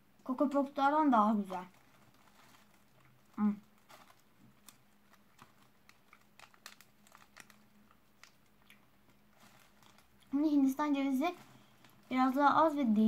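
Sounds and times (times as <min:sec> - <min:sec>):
wrapper crinkling: 0:01.3 - 0:13.0.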